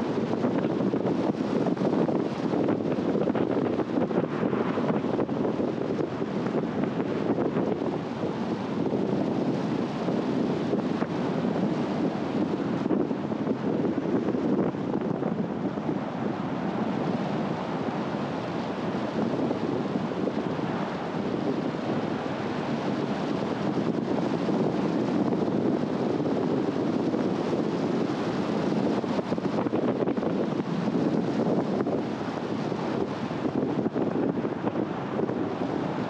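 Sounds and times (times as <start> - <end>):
wind and road noise: 0.0 - 36.0.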